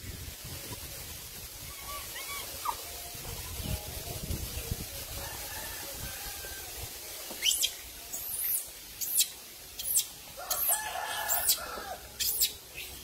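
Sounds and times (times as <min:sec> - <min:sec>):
animal's shrill high-pitched calls: 0:07.4 - 0:12.6.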